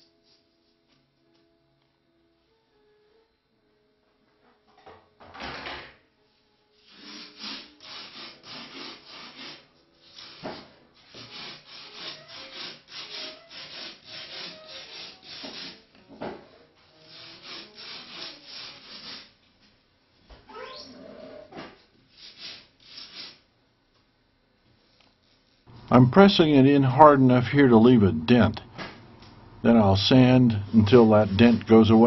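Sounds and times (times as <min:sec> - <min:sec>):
hand sanding foam: 0:06.8 - 0:15.9, 0:16.9 - 0:19.4, 0:22.1 - 0:23.4, 0:29.7 - 0:32.0.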